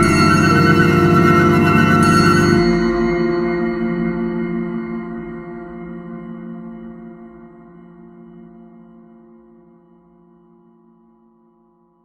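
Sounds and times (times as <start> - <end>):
held musical chord: 0.0 - 3.1.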